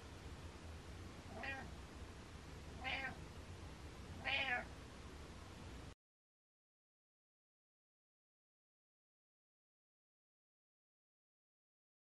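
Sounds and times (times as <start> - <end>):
cat meowing: 1.3 - 1.7, 2.8 - 3.2, 4.2 - 4.7.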